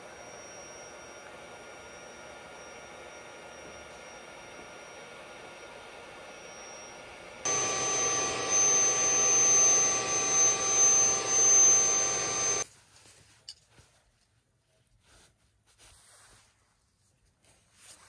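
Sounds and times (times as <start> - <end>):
electric air pump whining: 0.0 - 12.6.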